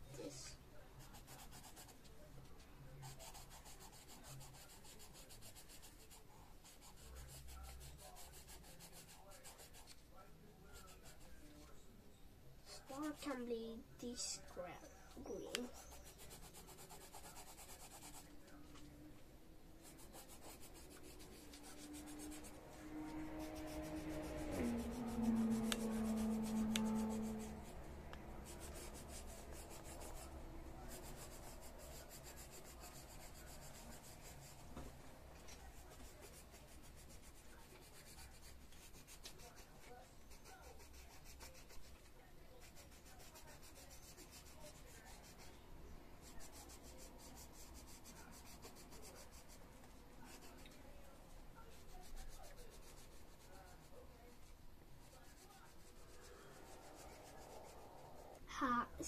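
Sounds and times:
coloured pencil scratching on paper: 0.1s - 2.2s, 2.9s - 11.8s, 12.7s - 18.9s, 19.8s - 45.6s, 46.2s - 59.0s.

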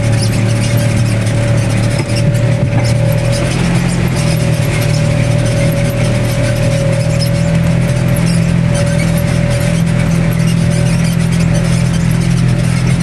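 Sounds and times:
vehicle engine drone with whine: 0.0s - 13.0s
water splashing: 0.5s - 9.5s.

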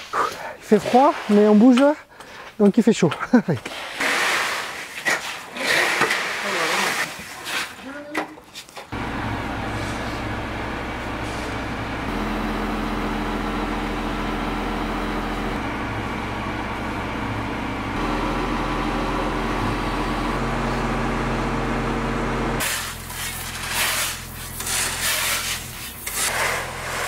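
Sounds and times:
gravel being raked: 3.7s - 8.0s, 22.6s - 27.0s
crane engine running: 9.0s - 27.0s.

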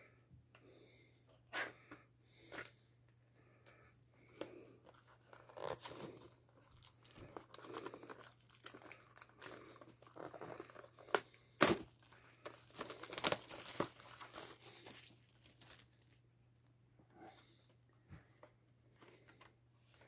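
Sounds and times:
plastic shrink-wrap crinkling: 4.9s - 16.2s.

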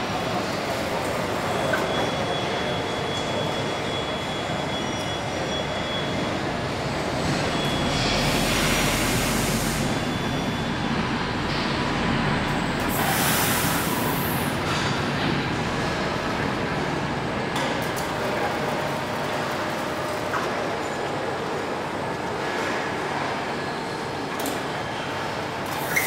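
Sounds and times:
machinery rumble and hum: 0.0s - 13.2s
air hiss: 12.9s - 14.4s.

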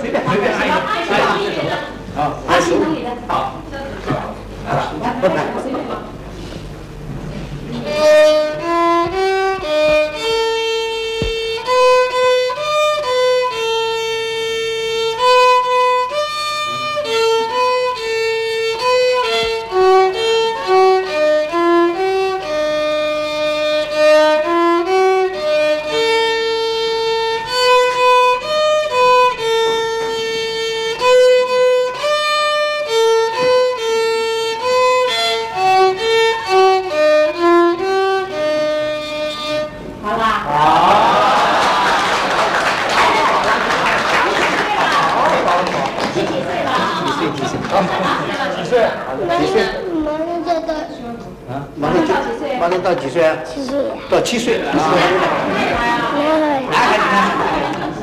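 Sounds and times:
solo violin melody: 7.8s - 39.9s.

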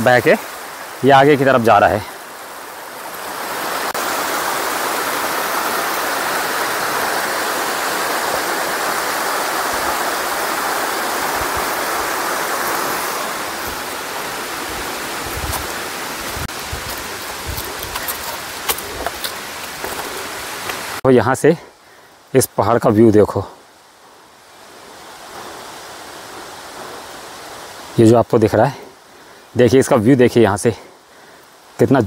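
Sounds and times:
stream running over rocks: 0.0s - 32.0s.

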